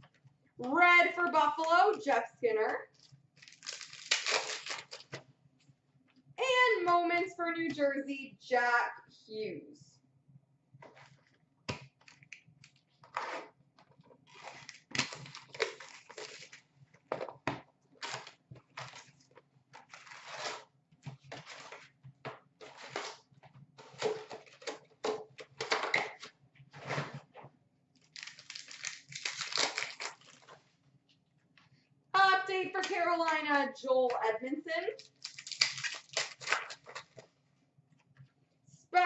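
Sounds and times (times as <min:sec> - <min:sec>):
wrappers crinkling: 0:03.0 - 0:05.2, 0:14.3 - 0:16.6, 0:28.0 - 0:30.6, 0:35.0 - 0:37.3.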